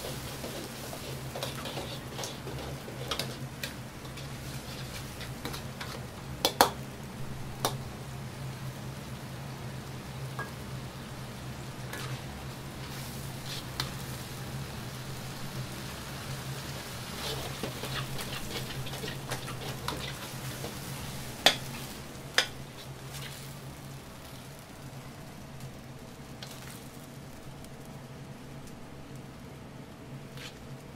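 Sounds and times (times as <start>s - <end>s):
ladle scraping wok: 0.0s - 6.2s, 11.9s - 14.0s, 16.8s - 23.5s
food sizzling in a wok: 0.0s - 30.9s.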